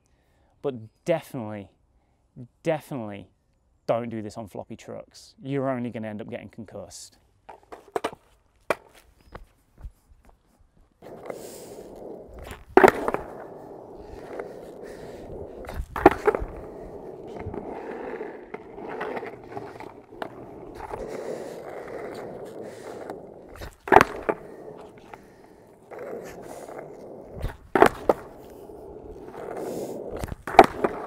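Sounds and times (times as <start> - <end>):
skateboard wheels rolling on pavement: 7.4 - 31.0
skateboard clacking on ground: 7.5 - 9.5, 11.0 - 31.0.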